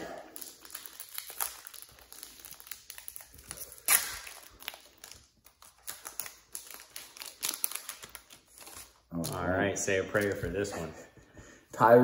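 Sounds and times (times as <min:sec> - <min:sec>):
plastic wrapper crinkling: 0:00.0 - 0:09.5.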